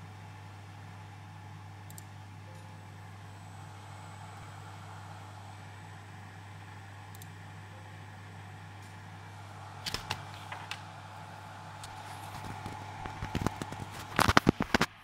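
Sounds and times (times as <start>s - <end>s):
low electrical hum: 0.0s - 15.0s
thin high whine: 2.5s - 8.1s.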